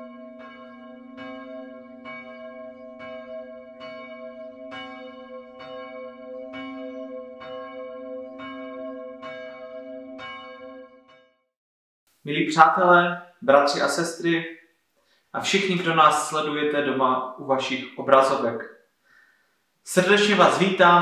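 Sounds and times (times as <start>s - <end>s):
church bell tolling: 0.0s - 11.2s.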